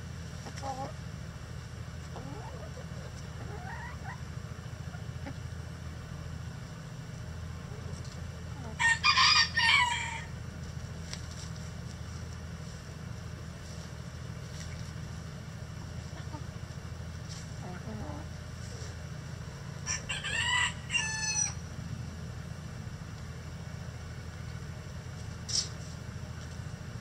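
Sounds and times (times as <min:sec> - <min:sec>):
steady low hum: 0:00.0 - 0:27.0
hens calling softly: 0:02.0 - 0:05.8, 0:15.8 - 0:19.0
rooster crowing: 0:08.7 - 0:10.3, 0:19.8 - 0:21.6.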